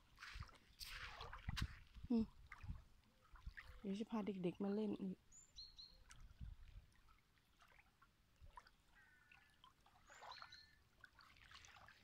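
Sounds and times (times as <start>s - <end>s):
faint bird chirps: 8.9s - 10.8s.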